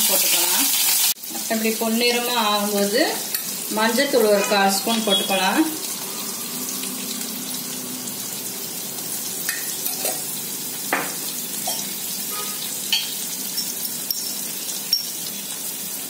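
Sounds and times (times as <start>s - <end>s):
vegetables sizzling in hot oil: 0.0s - 16.0s
steel spoon clinking on pan: 12.9s - 15.2s.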